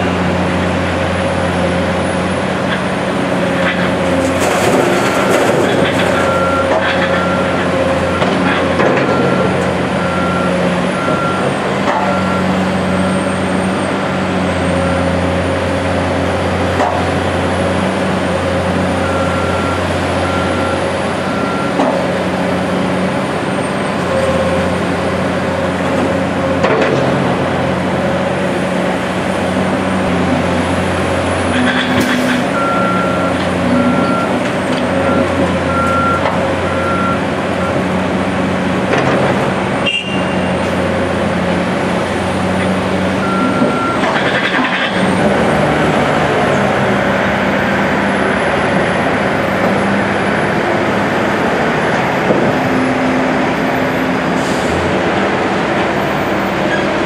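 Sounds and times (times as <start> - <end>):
excavator diesel engine running: 0.0 - 57.0
vehicle backup alarm beeping: 6.1 - 12.6, 19.0 - 21.9, 32.5 - 34.4, 35.0 - 37.8, 43.2 - 44.2.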